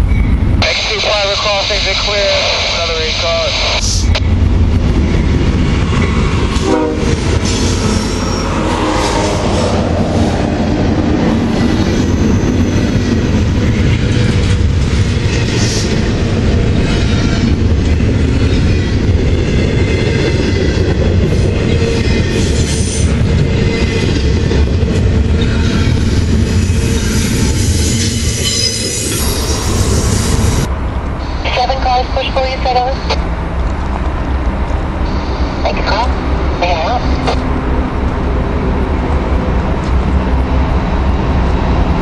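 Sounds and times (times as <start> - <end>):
locomotive rumbling past: 3.1 - 42.0
freight cars rumbling and clattering: 4.2 - 42.0
train horn: 6.6 - 9.8.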